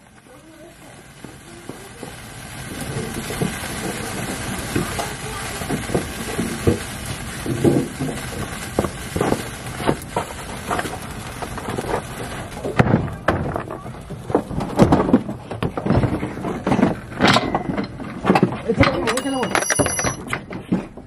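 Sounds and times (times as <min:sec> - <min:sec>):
fire hissing: 0:00.0 - 0:20.1
knocks and clatter: 0:07.5 - 0:21.0.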